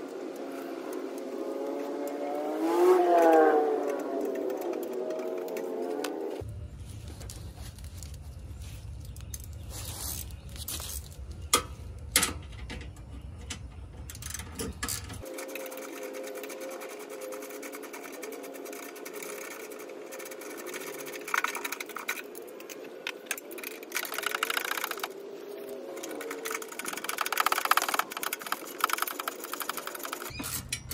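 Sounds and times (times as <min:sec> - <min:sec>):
rapid metallic clicking: 0:15.2 - 0:30.3.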